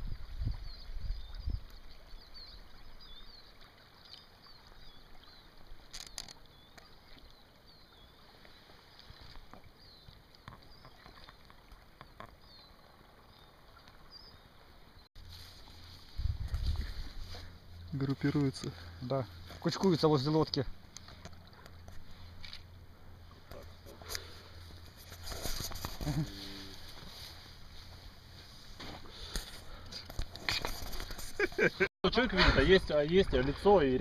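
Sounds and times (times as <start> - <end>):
flowing river: 0.0 - 34.0
songbirds chirping: 0.1 - 34.0
wind buffeting microphone: 16.0 - 17.3.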